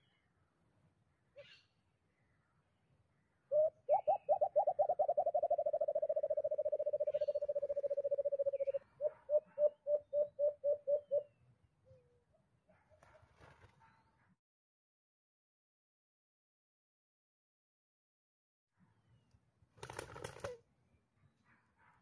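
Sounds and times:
dove hooting and trilling: 3.5s - 12.1s.

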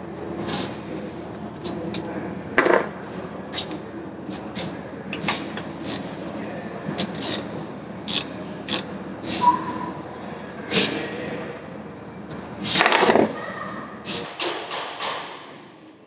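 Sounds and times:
tools clicking and knocking: 14.2s - 15.5s.

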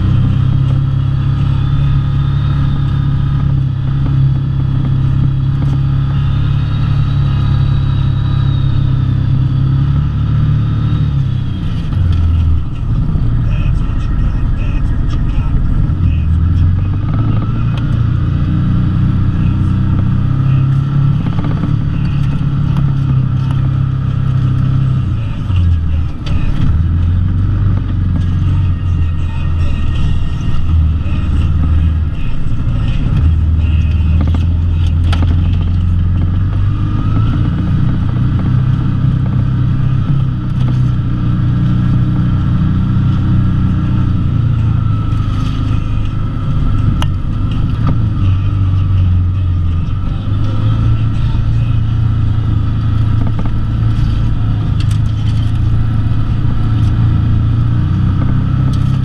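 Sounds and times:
off-road vehicle engine revving: 0.0s - 59.0s.

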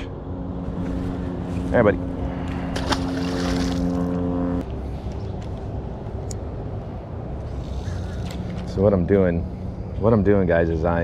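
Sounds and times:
motor humming: 0.3s - 4.6s.

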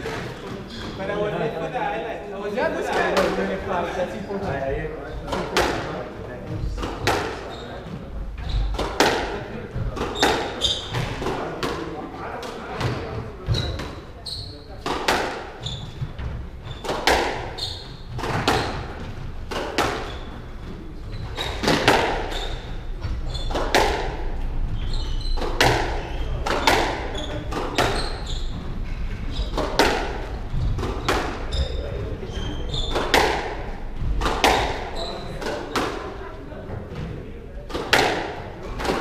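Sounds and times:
shoes squeaking on wooden floor: 0.0s - 1.5s, 2.6s - 11.8s, 12.6s - 39.0s
squash ball hits echoing: 5.2s - 6.0s, 6.6s - 7.5s, 8.4s - 14.1s, 14.7s - 20.8s, 21.4s - 36.3s, 37.0s - 39.0s.

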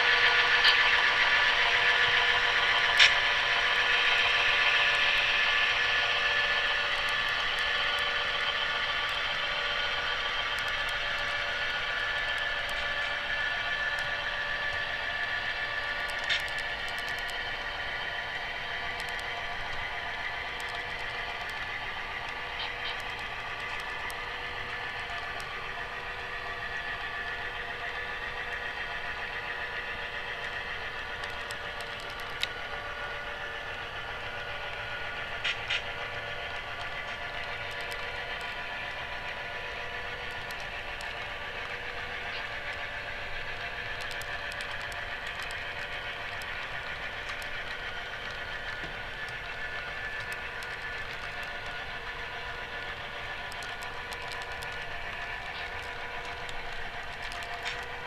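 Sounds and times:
model train cars rolling: 0.0s - 58.0s
sharp clicks: 16.0s - 17.4s, 18.9s - 19.8s, 31.2s - 32.6s, 35.4s - 35.9s, 43.6s - 51.8s, 52.8s - 58.0s.

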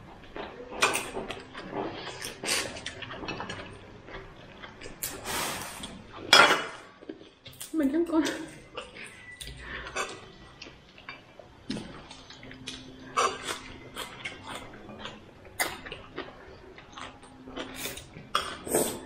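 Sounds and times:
dishes and utensils clinking: 6.3s - 6.9s.

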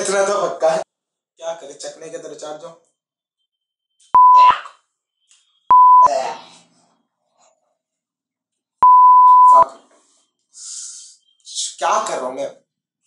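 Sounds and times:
censor bleeps: 4.2s - 4.7s, 5.7s - 6.1s, 8.8s - 9.7s.

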